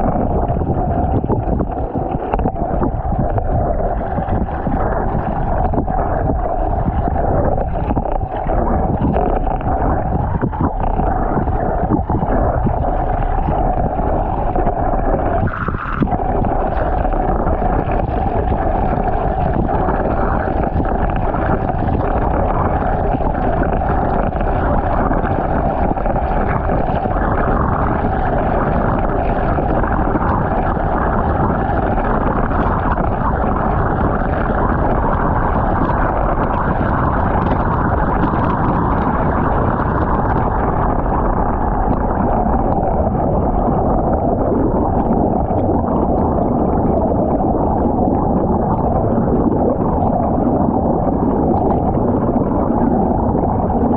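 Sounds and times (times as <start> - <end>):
muffled underwater water rushing: 0.0 - 53.9.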